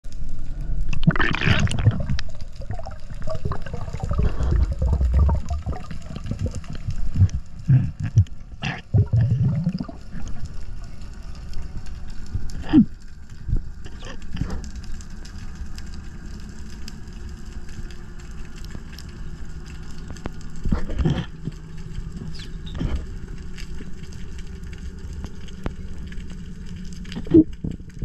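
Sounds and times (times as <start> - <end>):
bubbling exhalations: 0.9 - 10.6, 12.5 - 13.0, 13.8 - 14.7, 20.6 - 23.2, 27.1 - 27.9.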